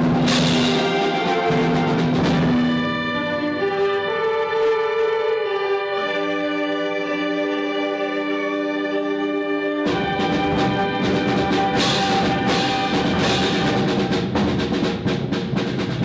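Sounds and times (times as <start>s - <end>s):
concert band playing: 0.0s - 16.0s
percussion crash: 9.9s - 16.0s.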